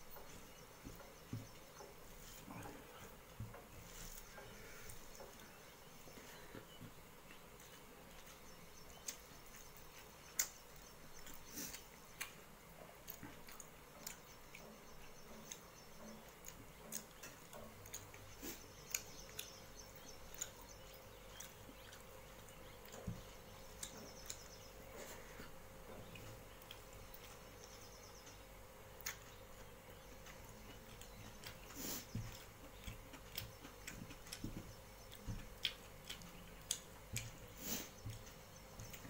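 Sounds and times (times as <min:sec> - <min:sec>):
wet chewing and lip smacks: 0:07.2 - 0:14.8, 0:15.4 - 0:24.8, 0:29.0 - 0:39.0.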